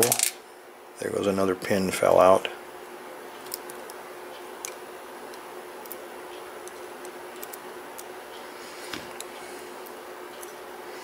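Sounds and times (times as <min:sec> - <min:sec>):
faint hum: 0:00.0 - 0:11.0.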